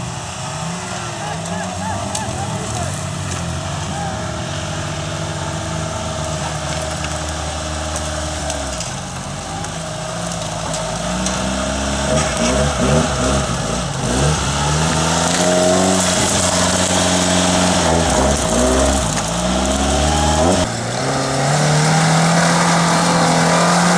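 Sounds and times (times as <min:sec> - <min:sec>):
off-road vehicle engine under load: 0:00.0 - 0:23.9.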